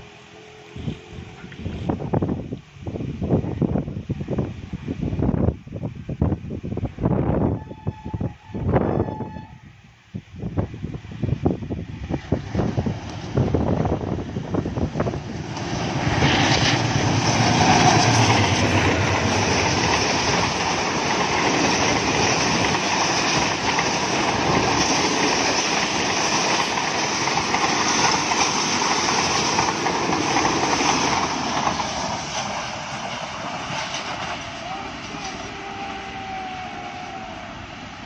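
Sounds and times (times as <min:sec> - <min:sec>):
train wheels rushing on rails: 0:10.6 - 0:38.0.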